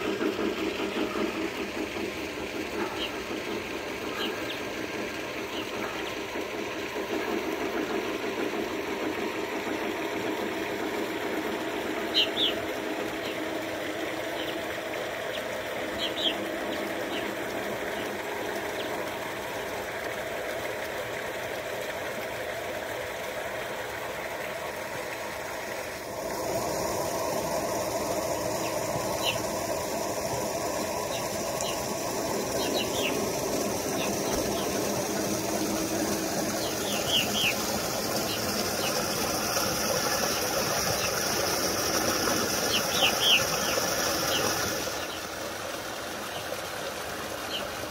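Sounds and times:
model train running on track: 0:00.0 - 0:47.9.

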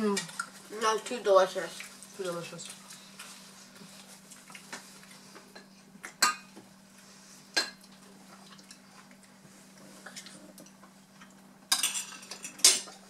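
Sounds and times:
faint steady hum: 0:00.0 - 0:13.0
cutlery clinking on a plate: 0:11.7 - 0:13.0.

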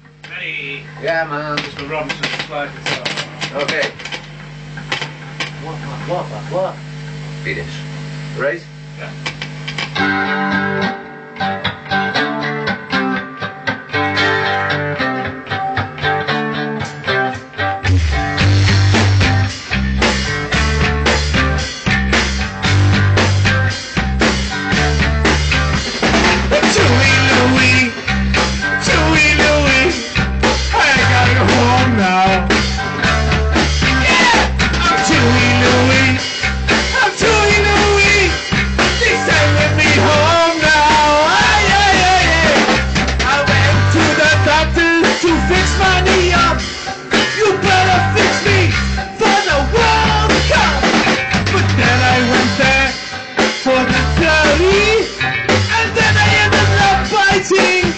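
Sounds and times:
rock band playing: 0:00.3 - 0:06.1, 0:09.0 - 0:57.9
person singing: 0:26.5 - 0:28.1, 0:28.7 - 0:32.7, 0:33.9 - 0:57.9.

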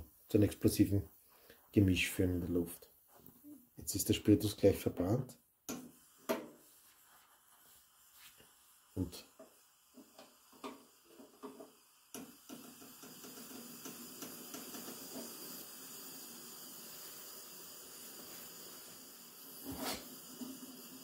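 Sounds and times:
pressure stove flame hissing: 0:03.9 - 0:21.0
stove burner pops and clicks: 0:10.1 - 0:15.3.

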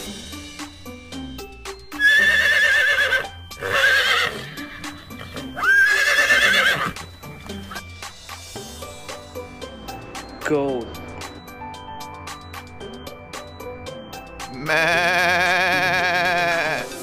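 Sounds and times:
background music: 0:00.0 - 0:17.0
horses neighing: 0:02.0 - 0:07.0, 0:14.6 - 0:17.0.

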